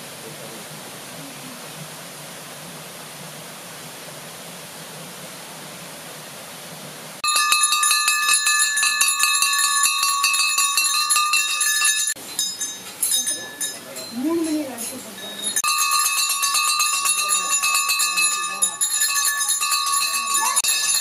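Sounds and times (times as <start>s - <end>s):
steady hiss: 0.0s - 19.2s
metal bells ringing rapidly: 7.2s - 21.0s.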